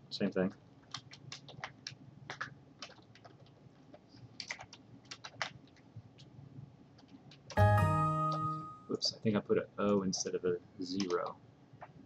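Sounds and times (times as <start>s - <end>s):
keyboard typing: 0.8s - 6.3s, 7.0s - 8.8s, 10.9s - 12.0s.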